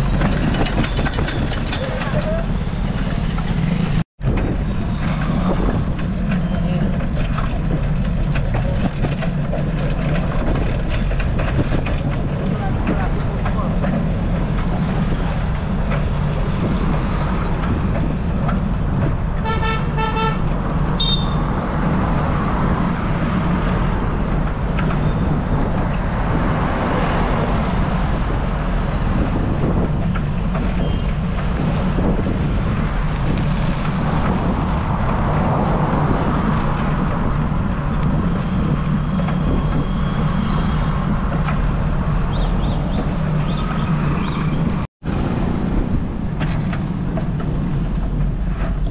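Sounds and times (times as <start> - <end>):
wind and road traffic rumble: 0.0 - 48.9
vehicle horn toots: 19.4 - 20.4, 21.0 - 21.5.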